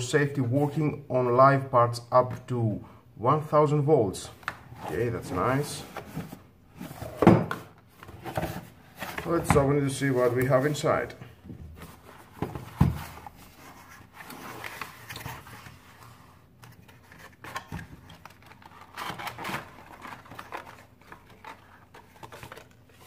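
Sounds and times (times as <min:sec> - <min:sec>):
cardboard packaging rustling: 0:04.8 - 0:23.0.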